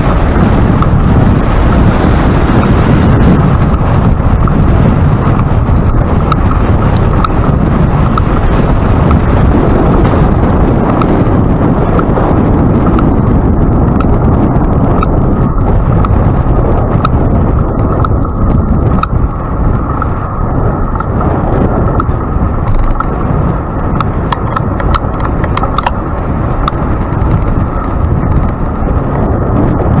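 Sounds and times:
wind buffeting microphone: 0:00.0 - 0:30.0
clicks and knocks from bike: 0:03.4 - 0:09.4, 0:13.8 - 0:28.8.

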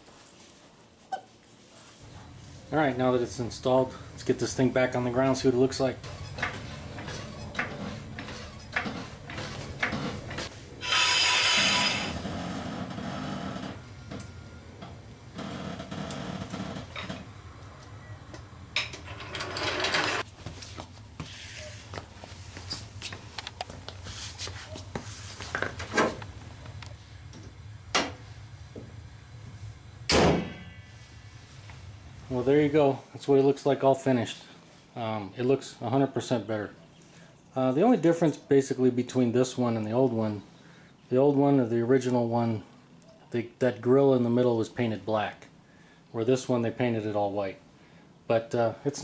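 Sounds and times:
floor jack clicking and knocking: 0:06.1 - 0:10.5.

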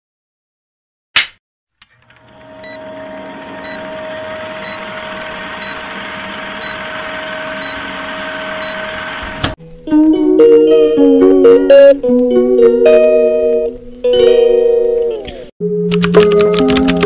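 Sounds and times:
film projector whirring: 0:01.8 - 0:09.6
short beeps: 0:05.6 - 0:05.8, 0:07.6 - 0:07.9.

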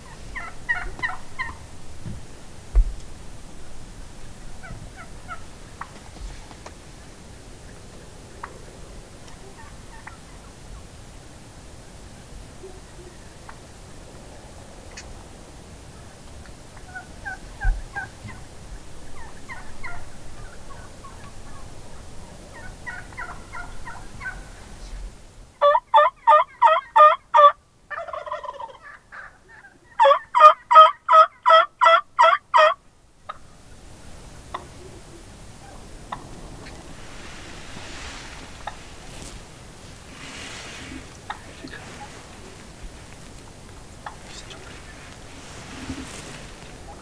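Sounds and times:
turkey warbling call: 0:00.0 - 0:01.6, 0:04.6 - 0:06.0, 0:09.2 - 0:10.5, 0:16.7 - 0:18.5, 0:19.2 - 0:24.6, 0:25.6 - 0:33.5
turkeys yelping: 0:00.0 - 0:01.7, 0:04.3 - 0:06.2, 0:06.8 - 0:10.8, 0:15.9 - 0:24.7, 0:25.6 - 0:33.6, 0:34.4 - 0:39.3, 0:40.1 - 0:42.7, 0:43.3 - 0:47.0.

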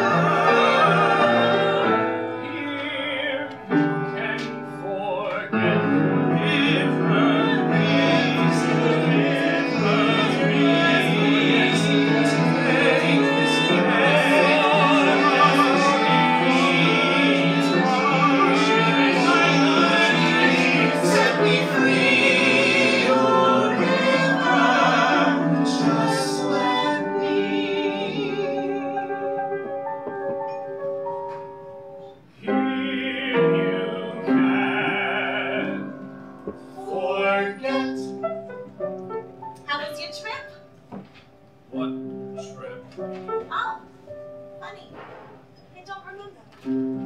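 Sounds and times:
men and women singing in harmony: 0:00.0 - 0:29.8, 0:32.4 - 0:38.3
piano accompaniment: 0:00.0 - 0:47.0.

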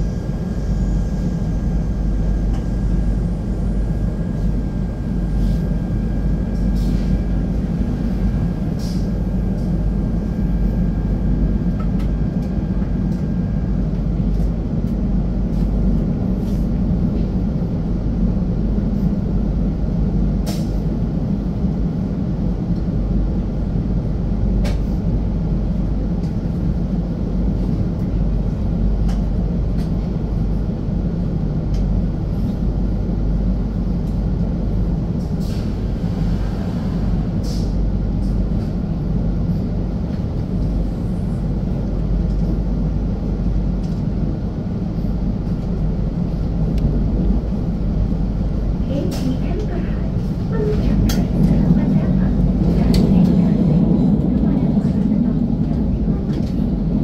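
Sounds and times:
train running rumble: 0:00.0 - 0:57.0.

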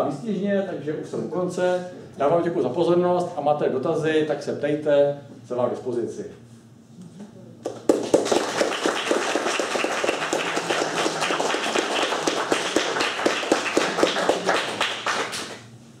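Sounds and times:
audience applauding: 0:07.7 - 0:15.6.

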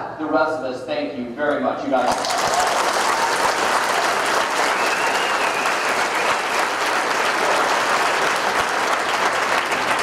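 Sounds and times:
large audience applauding: 0:02.1 - 0:10.0.

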